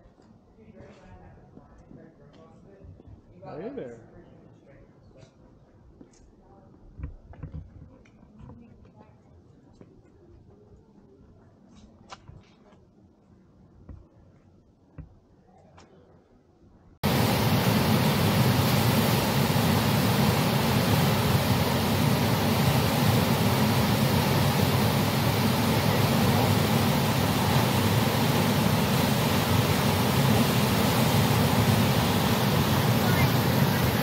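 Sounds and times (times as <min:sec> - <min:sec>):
churning whitewater rushing: 0:17.0 - 0:34.0.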